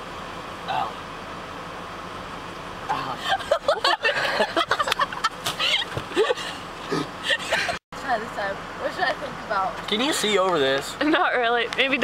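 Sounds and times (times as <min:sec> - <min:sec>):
low hum inside car: 0:00.0 - 0:12.0
people giggling and laughing: 0:03.1 - 0:07.8.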